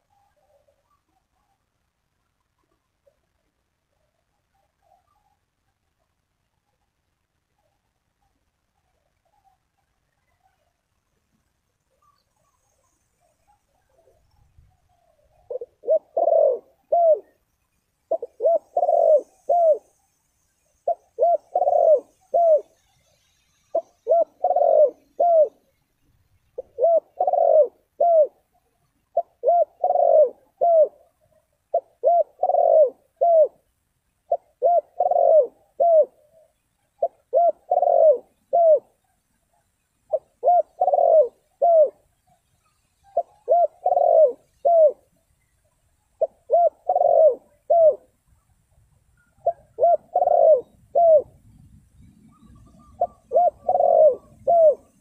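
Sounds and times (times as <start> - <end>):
dove cooing: 12.0 - 17.4, 18.1 - 20.0, 20.8 - 25.8, 26.6 - 48.5, 49.2 - 55.0.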